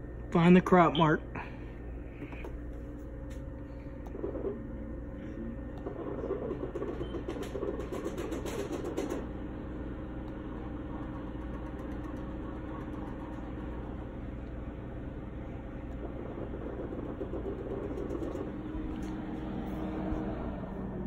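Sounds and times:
machinery humming: 8.8s - 21.0s.

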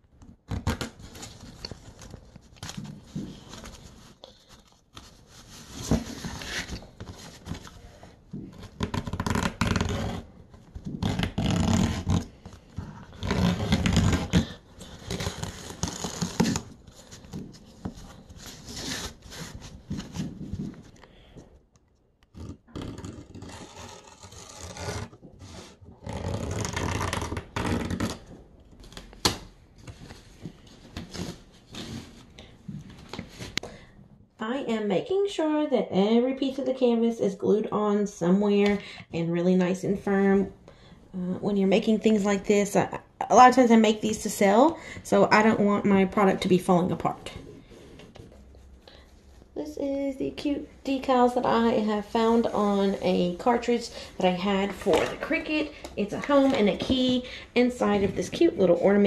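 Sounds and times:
canvas tearing: 8.8s - 10.3s, 10.9s - 12.4s, 13.1s - 16.7s, 22.4s - 28.2s
knife cutting canvas: 22.4s - 28.0s.

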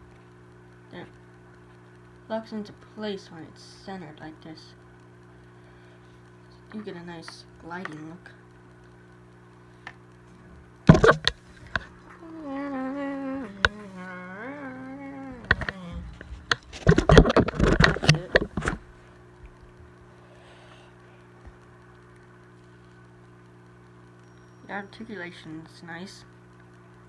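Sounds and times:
faint steady hum: 0.0s - 27.0s
plastic toy rustling and knocking: 16.7s - 18.8s.

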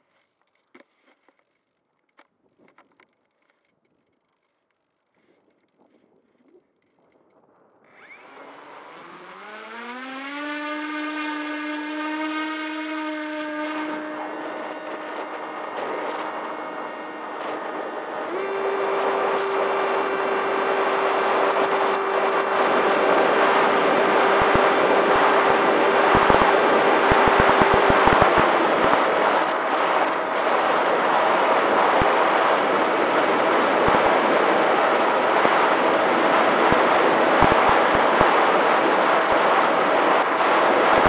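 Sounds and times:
electric motor and propeller whine: 7.9s - 41.0s
rushing air: 17.5s - 41.0s.

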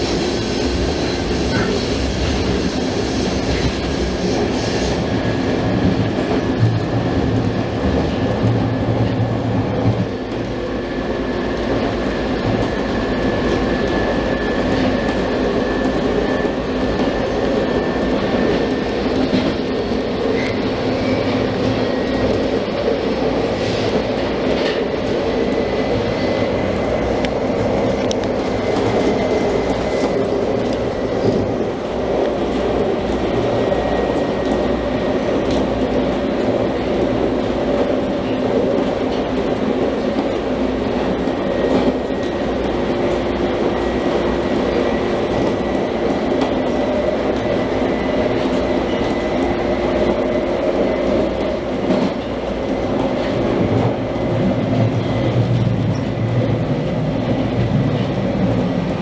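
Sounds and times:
subway car rumble: 0.0s - 59.0s
constant whine: 5.0s - 59.0s.

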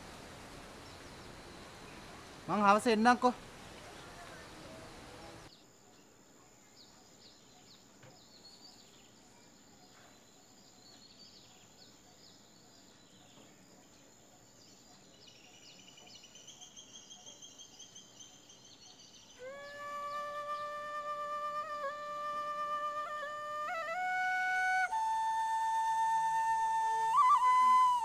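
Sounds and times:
birds chirping: 0.0s - 6.2s, 6.8s - 28.0s
flute holding a note: 19.4s - 28.0s.

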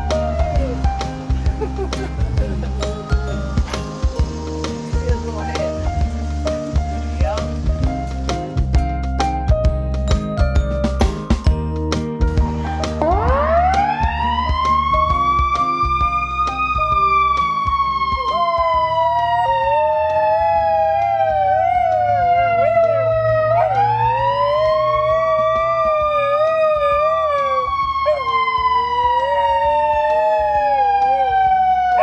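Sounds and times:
fire engine siren wailing: 13.0s - 32.0s
dog howling: 18.1s - 32.0s.

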